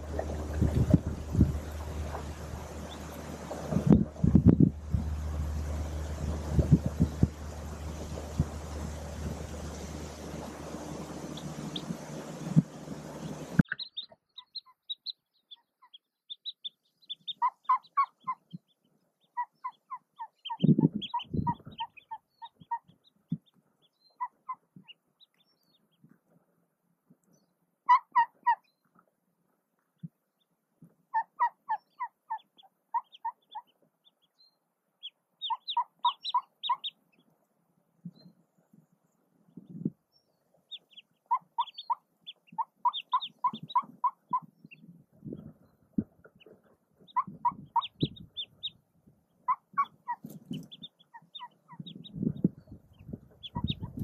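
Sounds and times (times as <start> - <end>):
low bumps of movement: 0.0 - 13.8
ducklings peeping: 0.0 - 26.1, 27.2 - 28.9, 30.4 - 37.5, 39.4 - 54.0
duck soft clucking quacks: 35.4 - 37.0, 40.7 - 44.8, 53.3 - 54.0.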